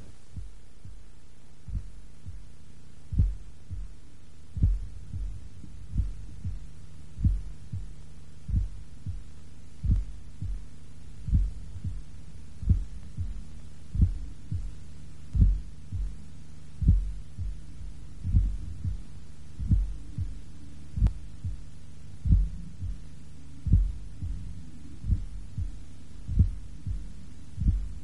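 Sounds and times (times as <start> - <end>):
low drone: 0.0 - 28.0
heartbeat-like double thud: 1.7 - 2.4, 3.1 - 3.9, 4.6 - 6.6, 7.2 - 7.9, 8.5 - 9.2, 9.8 - 10.6, 11.3 - 12.0, 12.6 - 14.7, 15.4 - 16.1, 16.8 - 17.6, 18.2 - 19.0, 19.6 - 20.4, 22.2 - 23.0, 23.6 - 28.0.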